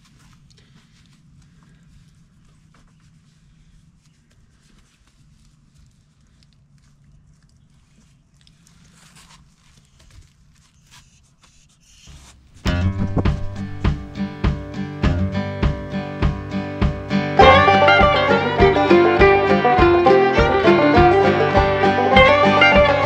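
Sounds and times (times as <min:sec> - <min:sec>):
low steady rumble: 0:12.5 - 0:15.3.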